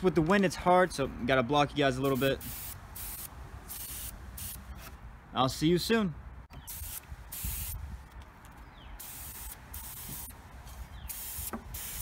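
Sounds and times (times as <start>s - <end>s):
paint sprayer hissing: 2.0s - 4.6s, 6.7s - 7.8s, 9.0s - 12.0s.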